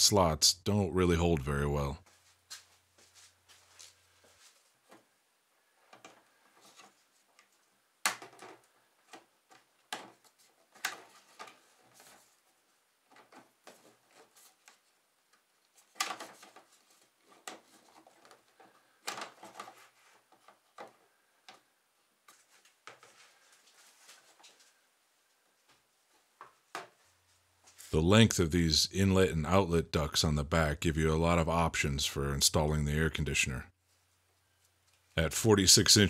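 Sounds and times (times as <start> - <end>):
plastic hose rustling: 2.0 - 28.0.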